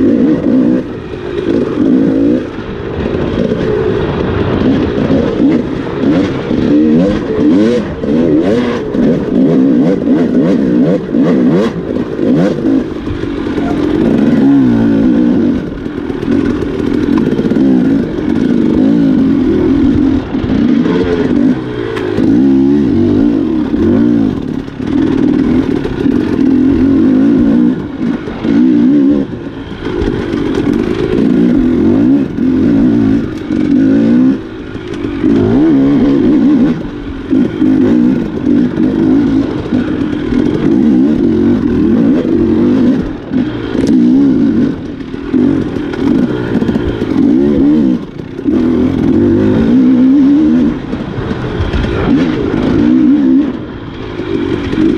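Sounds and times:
motorcycle engine revving: 0.0s - 54.9s.

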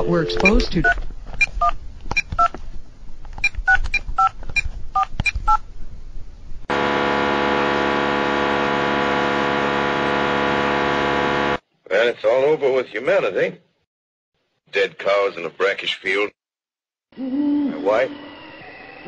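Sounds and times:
loud electric buzz: 6.7s - 11.6s.

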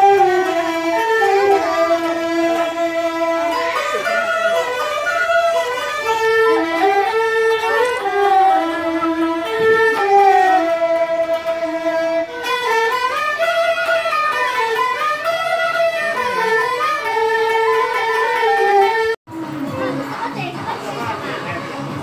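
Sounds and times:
bamboo pipe: 0.0s - 22.0s
bowed two-string fiddles: 0.0s - 22.0s
plucked lute: 0.0s - 22.0s.

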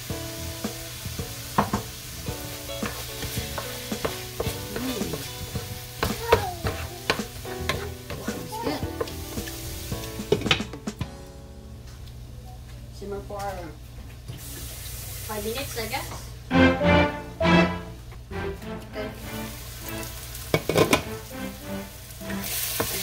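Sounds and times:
vegetables sizzling in a frying pan: 0.0s - 10.6s, 14.4s - 16.4s, 19.2s - 23.0s
wooden spatula scraping a pan: 2.5s - 10.5s.

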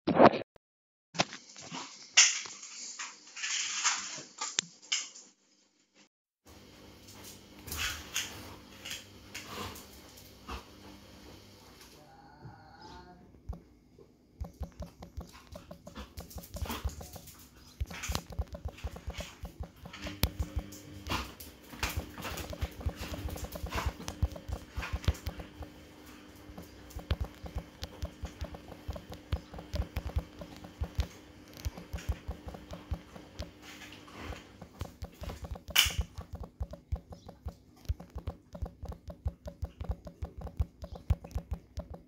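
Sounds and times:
faint steady hum: 7.2s - 42.0s
touchscreen typing taps: 14.4s - 20.7s, 21.8s - 25.8s, 26.5s - 33.6s, 34.2s - 42.0s.

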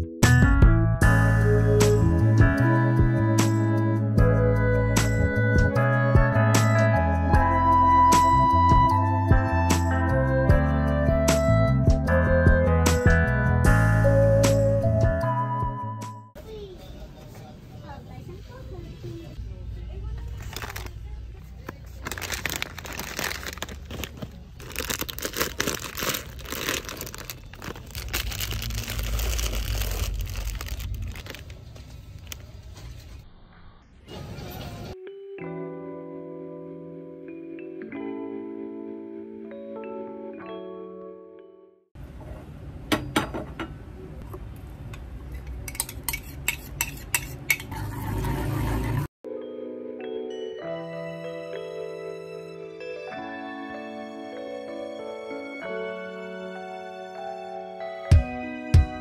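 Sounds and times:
plastic packets crinkling: 20.3s - 32.5s
soft mallet instrument music: 49.3s - 55.9s.

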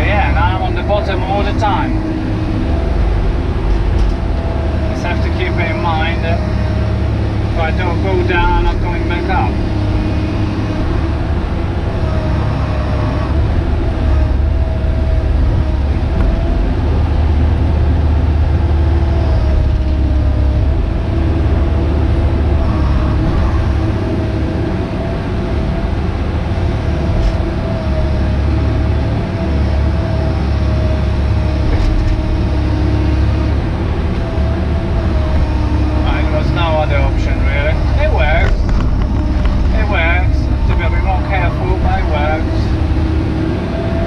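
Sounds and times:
excavator engine and hydraulics: 0.0s - 44.0s.

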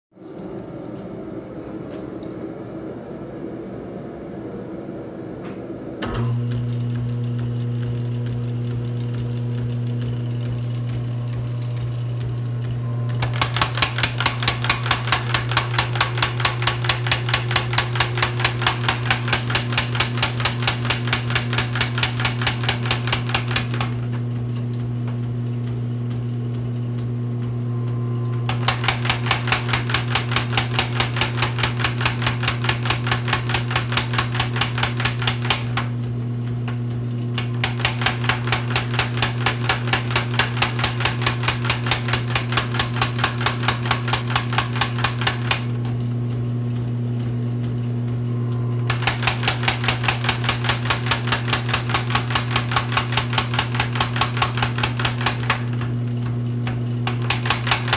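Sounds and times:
electric motor humming: 6.0s - 57.9s.

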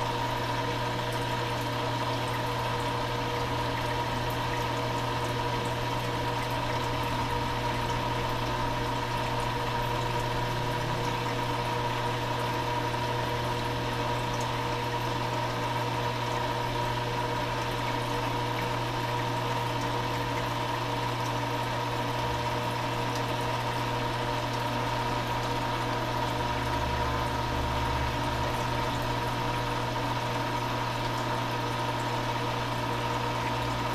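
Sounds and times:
pump humming: 0.0s - 33.9s.

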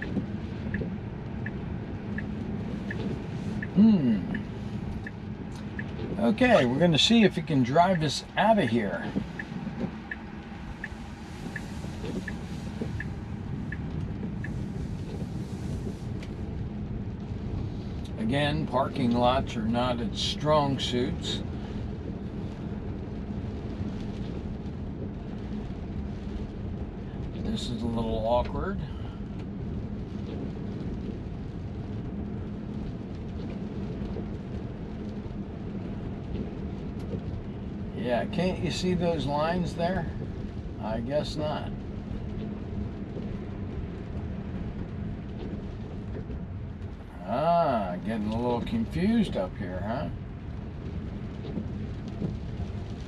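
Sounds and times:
faint hum: 0.0s - 16.3s
turn signal ticking: 0.0s - 19.6s, 21.2s - 47.2s, 50.1s - 53.0s
tyres rumbling on wet pavement: 0.0s - 53.0s.

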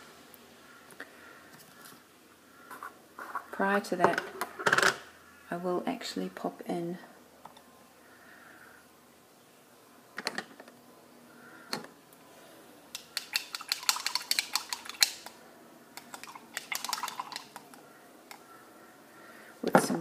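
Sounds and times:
paint pots and brushes clattering: 13.0s - 15.3s, 16.0s - 17.8s.

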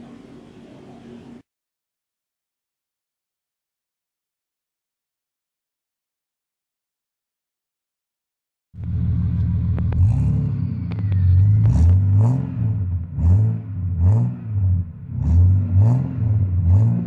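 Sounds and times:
car engine revving at exhaust: 8.8s - 17.0s.

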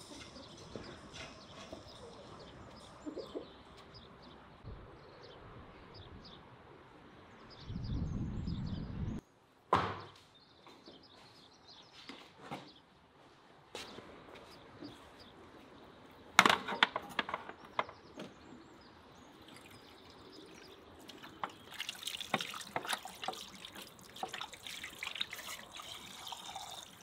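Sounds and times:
small birds chirping: 0.0s - 6.5s, 10.0s - 13.0s, 13.8s - 26.9s
sharp knock: 9.7s - 10.1s.

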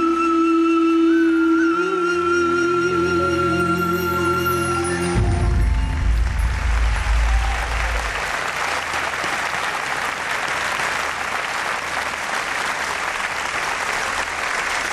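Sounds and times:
deep low rumble: 5.2s - 8.4s
audience applauding: 5.2s - 14.9s.

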